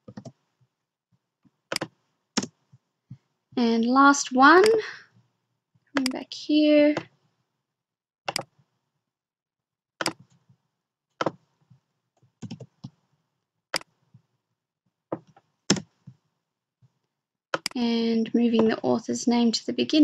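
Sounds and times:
mouse and keyboard clicks: 0:08.3 - 0:08.5, 0:10.0 - 0:10.4, 0:17.6 - 0:17.8.

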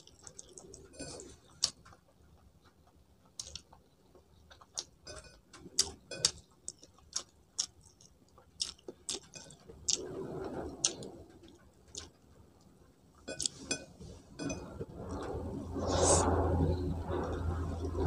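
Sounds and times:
person chewing: 0:00.0 - 0:10.1, 0:10.8 - 0:12.1, 0:13.2 - 0:13.8.

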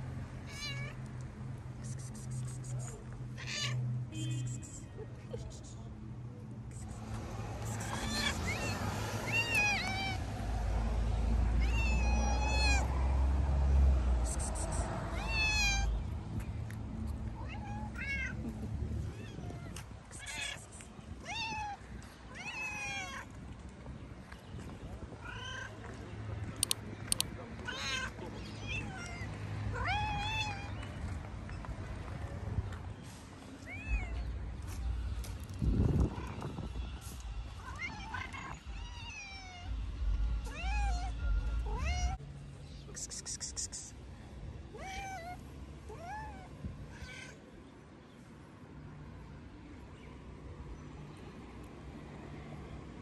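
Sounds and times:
cat meowing: 0:07.6 - 0:10.2, 0:15.2 - 0:15.9, 0:44.7 - 0:47.4
sharp clicks: 0:26.6 - 0:27.3.

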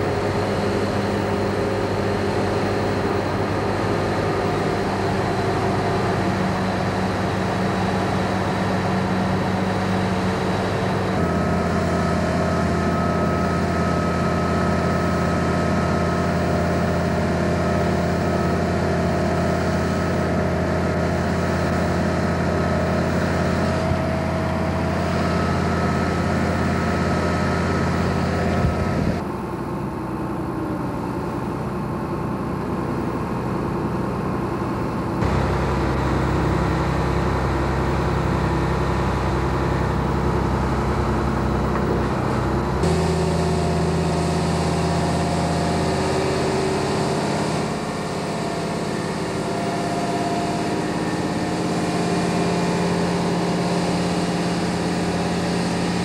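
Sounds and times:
diesel crane engine droning: 0:00.0 - 0:56.0.

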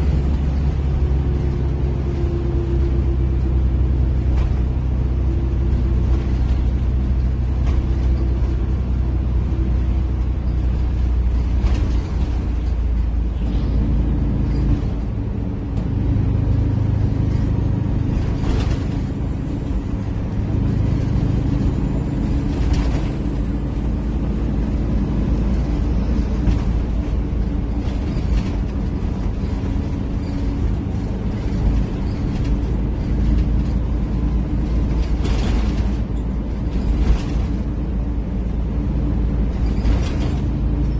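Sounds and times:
bus diesel engine running: 0:00.0 - 0:40.9
sharp knocks and rattles: 0:25.2 - 0:37.9.

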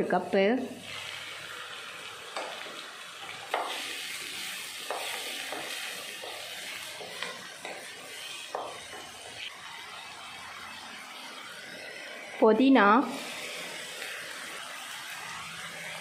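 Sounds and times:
vegetables sizzling in oil: 0:00.0 - 0:16.0
spatula knocking and scraping pan: 0:03.5 - 0:03.8, 0:04.8 - 0:09.4.

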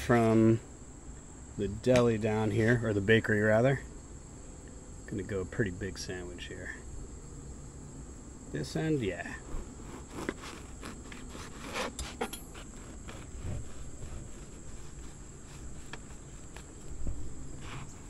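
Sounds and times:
high insect drone: 0:00.0 - 0:18.0
crust crackling: 0:09.2 - 0:18.0
bread knife sawing crusty loaf: 0:09.4 - 0:16.8, 0:17.6 - 0:18.0.

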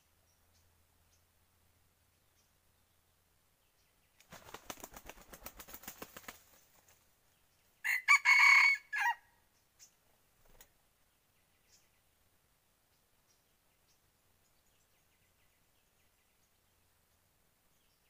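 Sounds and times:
rooster wings flapping: 0:04.2 - 0:07.0
rooster crowing: 0:07.8 - 0:09.3.

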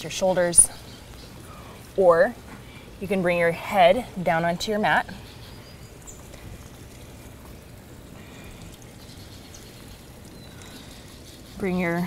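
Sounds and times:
water trickling and pouring: 0:04.7 - 0:12.0.

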